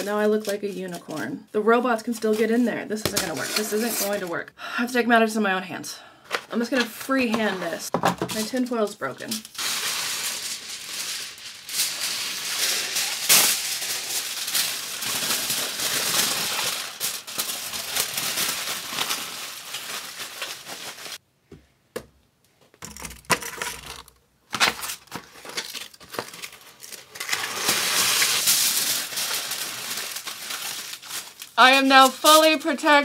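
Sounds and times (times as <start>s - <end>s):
aluminium foil crinkling: 0.0s - 1.4s, 8.3s - 21.2s, 23.2s - 33.0s.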